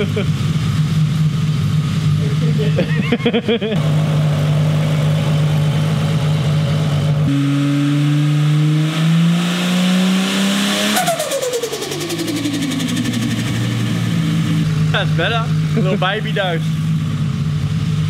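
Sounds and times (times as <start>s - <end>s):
car engine idling and revving: 0.0s - 18.0s.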